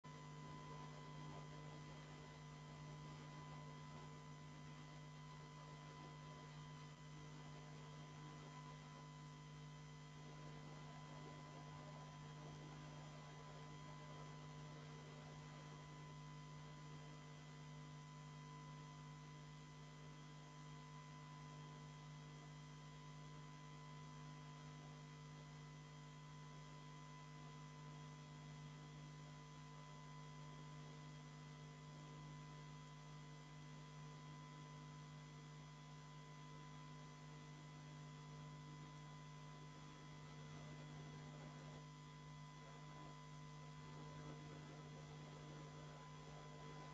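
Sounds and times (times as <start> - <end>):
electrical hum: 0.0 - 46.9
faint thin whine tones: 0.1 - 46.9.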